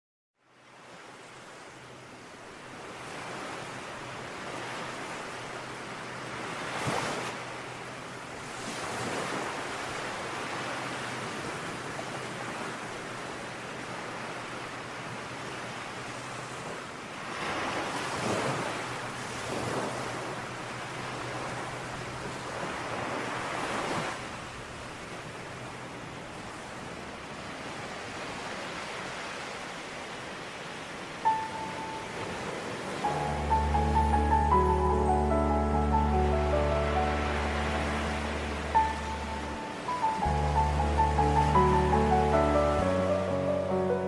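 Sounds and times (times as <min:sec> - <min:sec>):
waves breaking: 0:00.7 - 0:44.0
ocean surf washing onto shore: 0:00.8 - 0:44.0.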